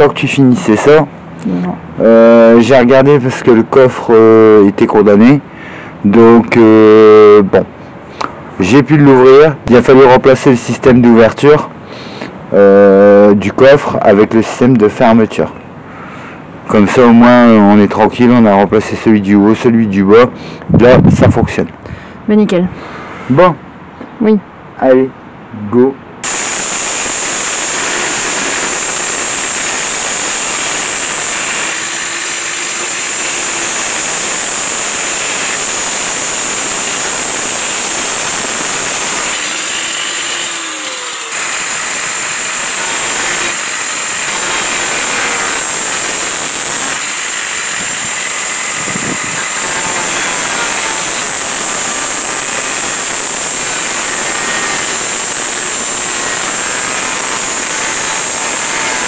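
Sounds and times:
angle grinder cutting steel: 26.2 - 59.0.

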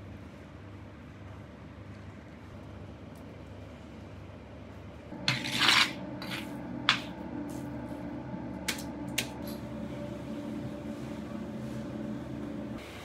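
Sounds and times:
metal utensil scraping pot: 5.2 - 6.5.

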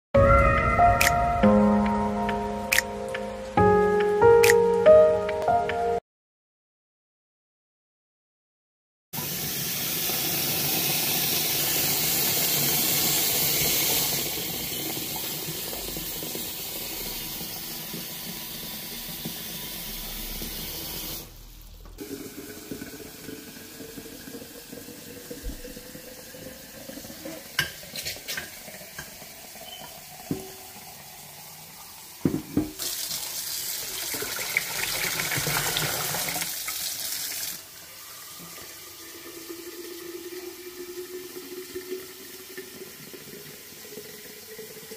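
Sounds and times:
sharp pops and ticks: 2.7 - 3.2
water heating with rising whine: 9.2 - 27.2
water at rolling boil: 9.2 - 44.9.

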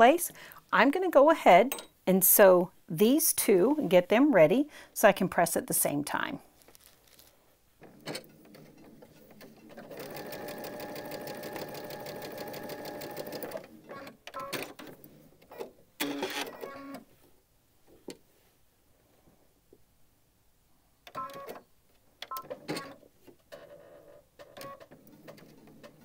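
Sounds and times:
sewing machine stitching: 8.0 - 14.9.

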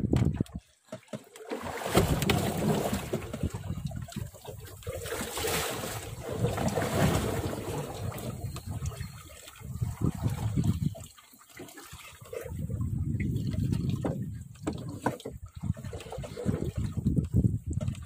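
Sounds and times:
wind buffeting microphone: 0.0 - 0.6, 6.0 - 11.0, 12.5 - 18.0
water slapping against boat hull: 0.0 - 18.0.

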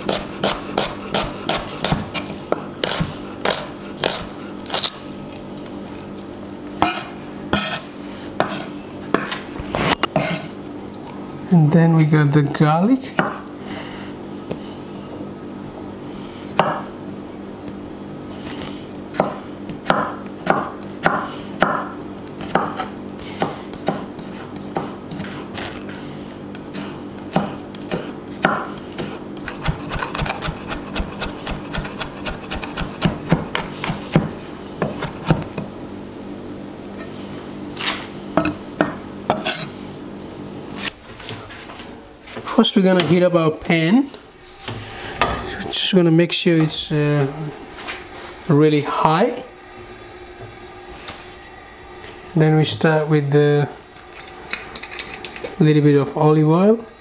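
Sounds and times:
knife chopping on wooden board: 0.0 - 5.0, 13.2 - 13.4, 16.5 - 16.9, 19.1 - 25.4, 26.8 - 35.6.

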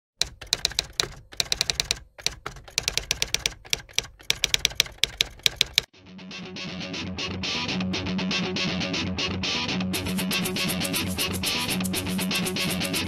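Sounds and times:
keystroke clicks: 0.2 - 5.9.

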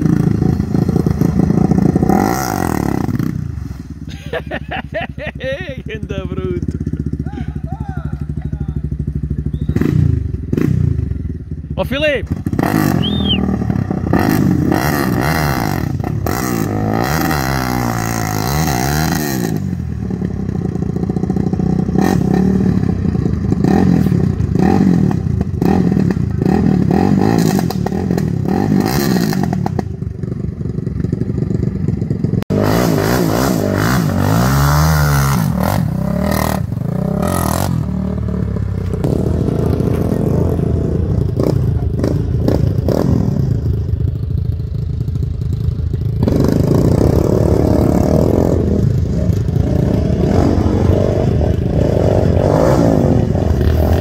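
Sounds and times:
quad bike engines revving: 0.0 - 54.0.

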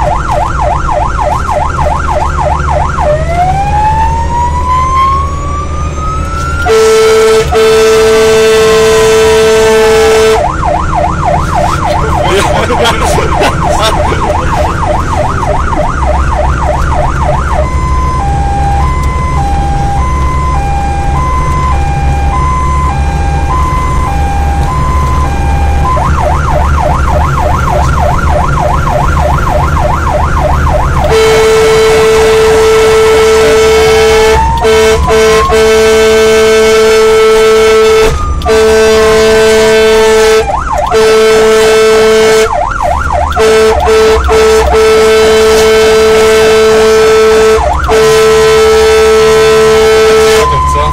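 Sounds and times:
fire engine siren: 0.0 - 50.9
truck engine: 0.0 - 50.9
air horn blast: 6.6 - 10.5, 31.0 - 42.5, 43.3 - 50.9.

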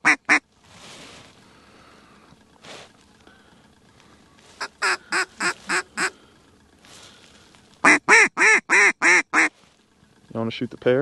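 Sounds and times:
duck call quacks: 0.0 - 0.4, 4.6 - 6.2, 7.8 - 9.5.

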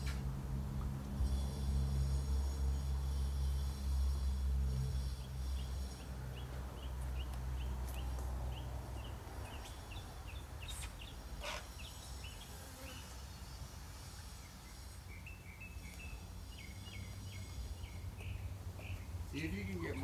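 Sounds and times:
bird chirping: 5.0 - 13.6, 14.4 - 20.0.

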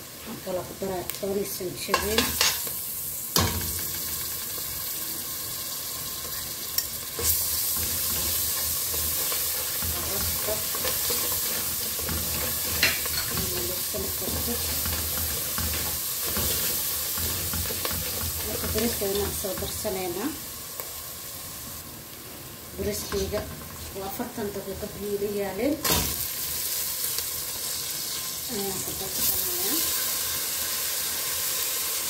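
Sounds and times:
onion sizzling in oil: 0.0 - 32.0
ladle scraping pot: 7.2 - 19.3.

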